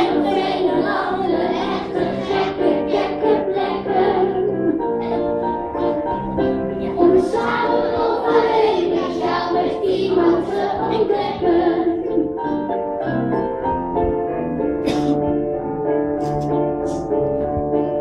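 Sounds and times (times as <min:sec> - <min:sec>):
young children singing: 0:00.0 - 0:12.7
instrumental accompaniment: 0:00.0 - 0:18.0.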